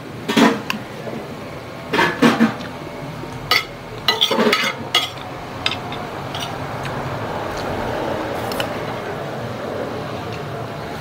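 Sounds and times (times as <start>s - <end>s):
steady background noise: 0.0s - 11.0s
cutlery clinking on a plate: 3.5s - 6.6s.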